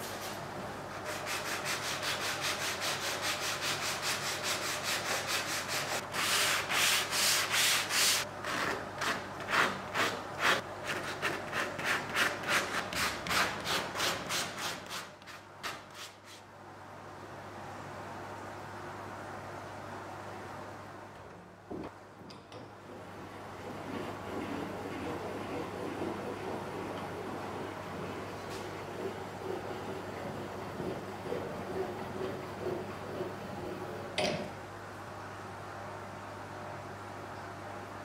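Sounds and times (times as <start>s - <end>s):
sanding sponge rubbing wood: 0.9s - 8.2s.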